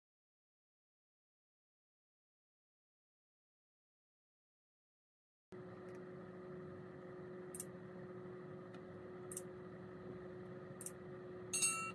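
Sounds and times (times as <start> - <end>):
faint steady low hum: 5.6 - 11.9.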